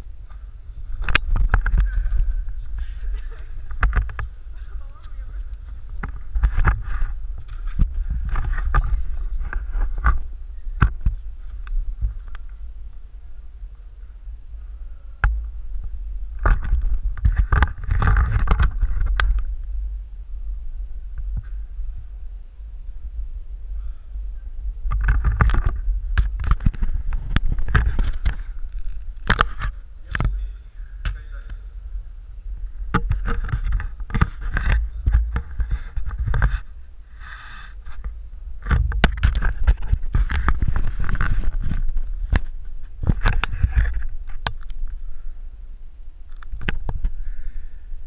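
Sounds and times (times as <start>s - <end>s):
low rumble: 0.0s - 48.0s
camera housing knocks and rubbing: 3.6s - 4.3s, 5.9s - 10.2s, 16.4s - 19.5s, 24.9s - 30.3s, 32.9s - 36.7s, 37.8s - 44.7s.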